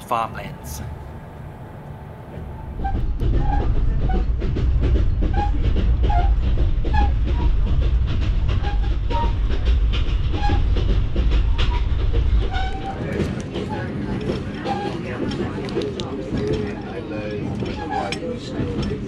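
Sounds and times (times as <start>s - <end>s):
train carriage rumble: 0.0s - 19.0s
rattling and clicking: 2.8s - 19.0s
high-pitched squeaks: 17.6s - 18.4s.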